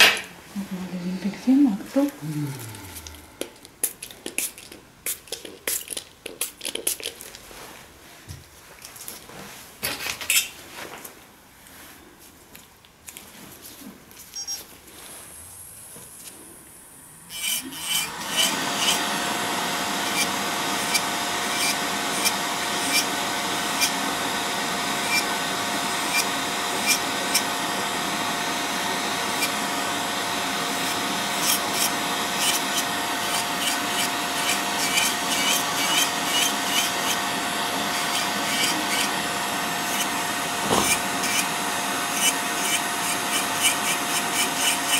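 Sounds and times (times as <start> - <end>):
nail drill whining: 17.2 - 44.9.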